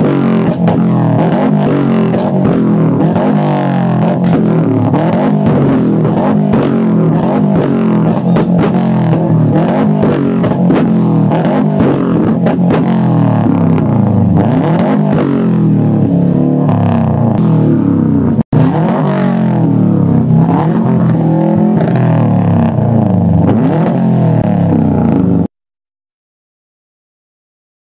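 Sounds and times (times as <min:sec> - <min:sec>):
exhaust pops and bangs: 0:00.0 - 0:16.0
car engine droning at high revs: 0:00.0 - 0:25.5.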